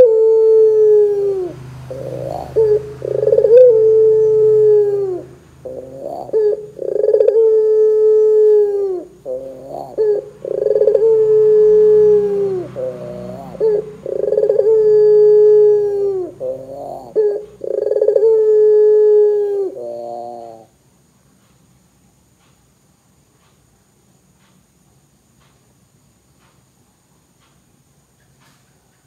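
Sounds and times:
short rising bird notes: 0:00.0 - 0:20.7
dove cooing: 0:00.0 - 0:20.8.

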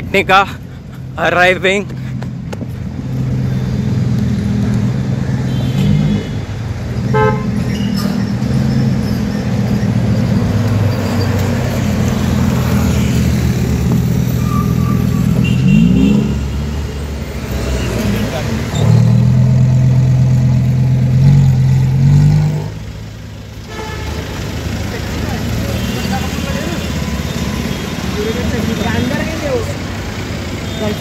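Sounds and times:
car horn toot: 0:07.1 - 0:08.0, 0:14.4 - 0:16.5, 0:23.7 - 0:24.2.

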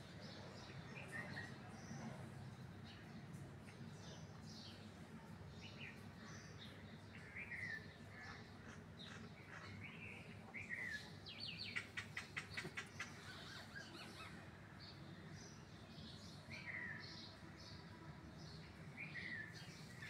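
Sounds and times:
small birds chirping: 0:00.1 - 0:20.0.

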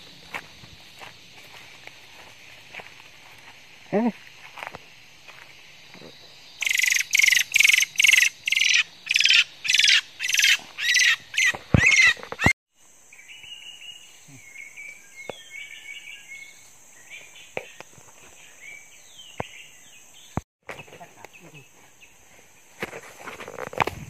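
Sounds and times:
high insect buzz: 0:00.0 - 0:24.0
faint bird chirping: 0:06.1 - 0:12.5, 0:13.1 - 0:22.7
loud harsh bird calls: 0:06.6 - 0:12.5.

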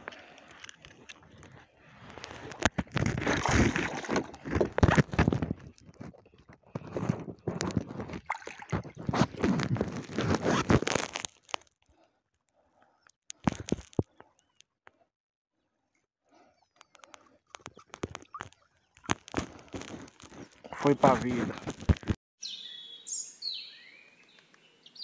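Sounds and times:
water sloshing: 0:00.0 - 0:11.3, 0:17.0 - 0:22.1
handling on plastic kayak: 0:00.0 - 0:11.7, 0:13.3 - 0:14.4, 0:16.8 - 0:22.2.

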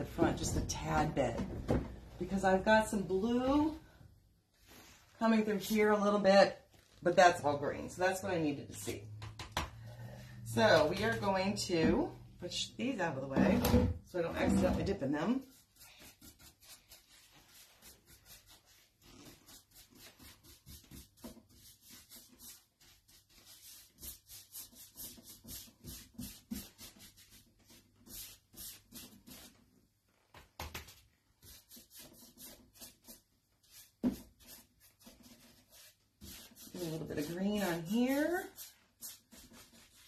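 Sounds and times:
paintbrush bristle strokes: 0:04.6 - 0:05.8, 0:15.4 - 0:29.6, 0:31.4 - 0:40.0.

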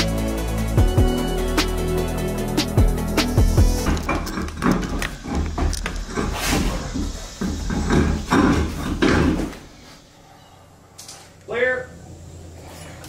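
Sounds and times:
electronic music with heavy bass: 0:00.0 - 0:05.0.

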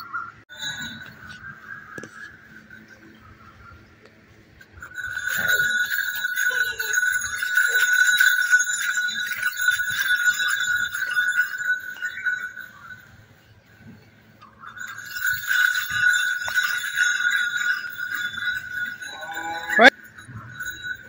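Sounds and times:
metal bells jingling: 0:00.5 - 0:21.0.

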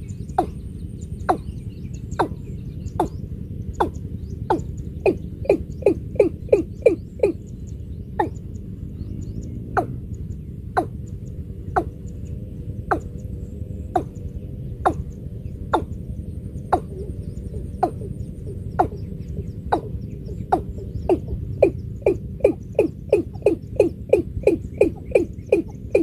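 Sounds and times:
watercock calling: 0:00.3 - 0:00.6, 0:01.2 - 0:01.5, 0:02.1 - 0:02.4, 0:03.0 - 0:03.2, 0:03.8 - 0:07.5, 0:08.2 - 0:08.4, 0:12.9 - 0:13.2, 0:14.0 - 0:14.2, 0:15.7 - 0:16.0, 0:18.7 - 0:19.0.

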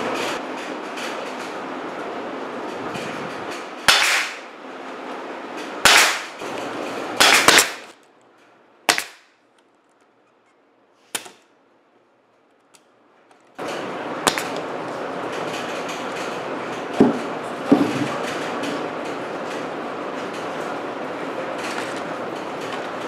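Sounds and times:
steady noisy running sound: 0:00.0 - 0:23.0
pneumatic nailer shots: 0:03.6 - 0:04.5, 0:05.8 - 0:08.0, 0:08.9 - 0:09.4, 0:11.1 - 0:11.5, 0:14.2 - 0:14.6.

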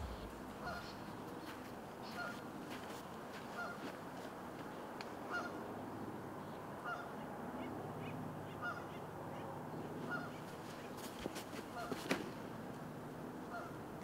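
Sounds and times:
geese honking: 0:00.0 - 0:01.1
low steady hum: 0:00.0 - 0:01.2.

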